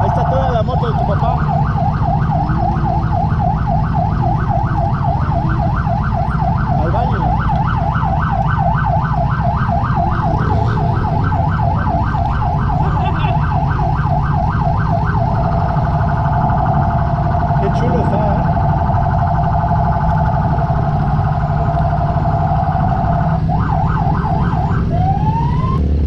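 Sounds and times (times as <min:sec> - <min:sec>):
siren yelping: 0:00.0 - 0:25.9
motorcycle engine rumble: 0:00.0 - 0:26.0.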